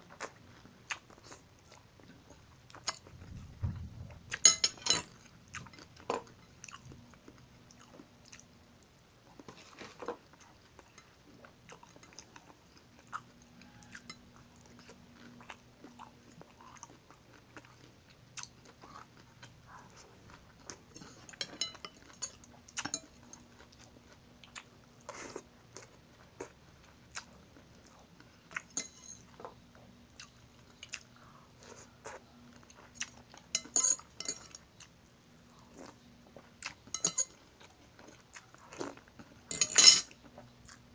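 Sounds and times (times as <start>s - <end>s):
metal cutlery clinking on a plate: 4.4s - 6.5s, 20.9s - 23.2s, 28.7s - 29.2s, 33.5s - 34.6s, 36.9s - 37.4s, 39.5s - 40.2s.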